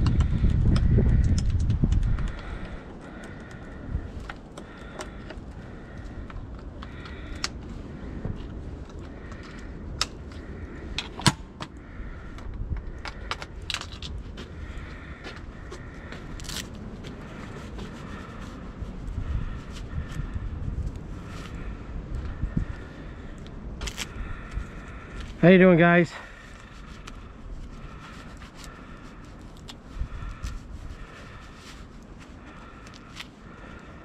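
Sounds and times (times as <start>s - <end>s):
handlebar clicks taps and rattles: 0.0s - 3.6s, 11.0s - 14.1s.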